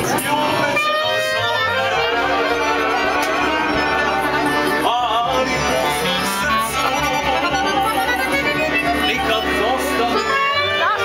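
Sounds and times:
live band with accordion: 0:00.0 - 0:11.0
person singing: 0:00.0 - 0:11.0.

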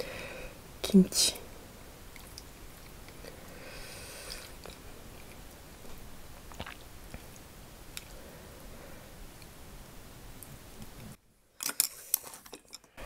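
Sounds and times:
chewing food: 0:04.3 - 0:07.4.

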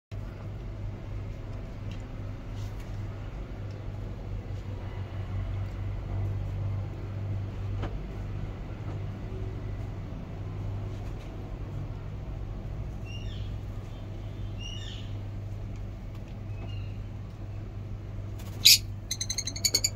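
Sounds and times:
birds chirping: 0:18.5 - 0:19.9.

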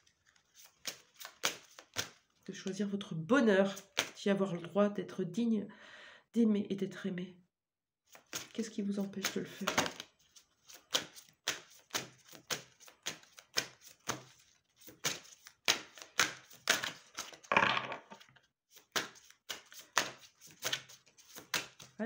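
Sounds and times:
cards shuffled by hand: 0:00.0 - 0:02.4, 0:08.1 - 0:22.0.

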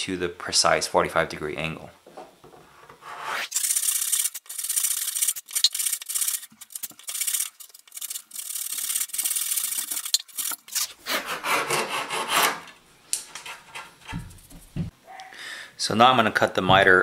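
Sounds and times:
hand saw cutting wood: 0:10.1 - 0:12.7.

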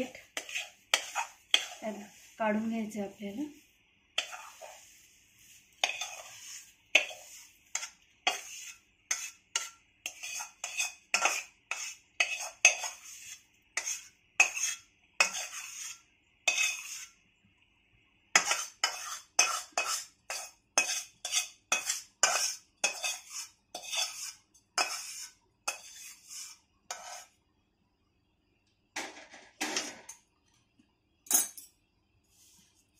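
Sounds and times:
spoon scraping a pan: 0:00.0 - 0:17.2, 0:18.3 - 0:27.4.

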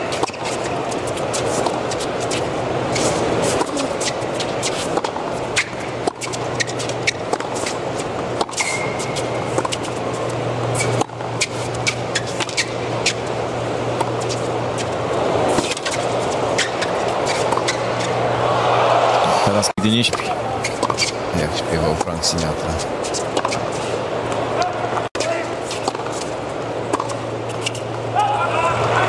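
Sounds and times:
shoe squeak: 0:00.0 - 0:07.8, 0:08.4 - 0:10.0, 0:10.7 - 0:13.3, 0:15.5 - 0:18.2, 0:20.5 - 0:21.2
racket striking tennis ball: 0:00.0 - 0:09.9, 0:20.1 - 0:21.2, 0:25.6 - 0:26.3
stadium crowd murmur: 0:18.1 - 0:20.8.

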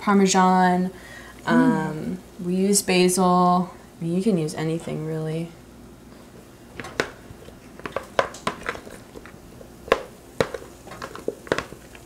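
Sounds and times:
vegetables tapping on griddle pan: 0:09.9 - 0:11.9.

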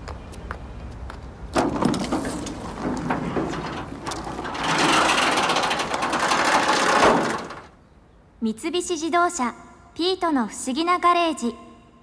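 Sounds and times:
metal shutter slats rattling: 0:01.6 - 0:07.8.

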